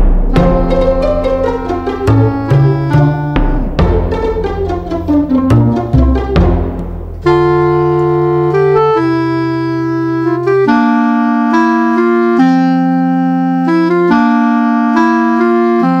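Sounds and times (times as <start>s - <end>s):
slow sustained chords: 0.0s - 9.2s
low bass line: 0.0s - 10.4s.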